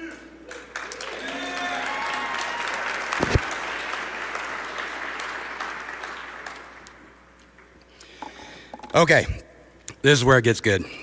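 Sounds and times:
large audience applauding: 0.5s - 7.0s.

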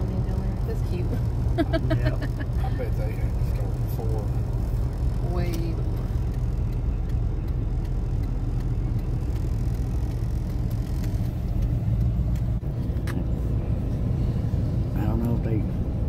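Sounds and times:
car engine and tyres rumbling: 0.0s - 16.0s
faint ticks: 5.0s - 13.2s.

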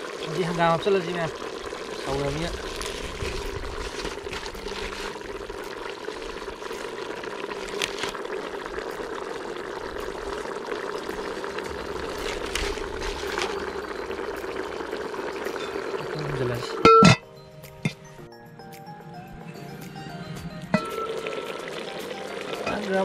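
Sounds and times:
curry bubbling in a pot: 0.0s - 16.8s.

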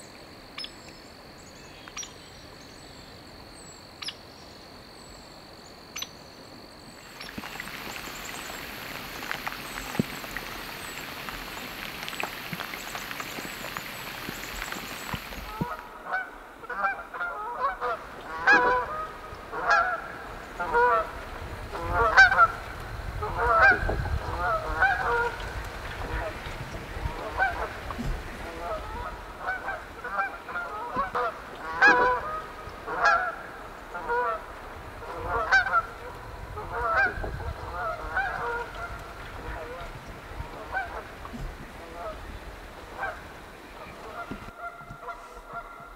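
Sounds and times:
geese honking: 7.2s - 21.2s, 21.8s - 22.6s, 23.2s - 26.4s, 27.0s - 39.8s, 40.5s - 41.1s, 43.0s - 45.9s.

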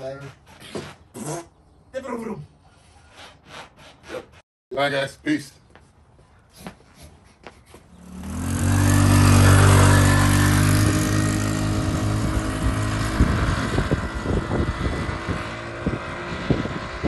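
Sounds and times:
engine crackles: 7.9s - 17.0s
go-kart engine passing by: 8.0s - 17.0s.

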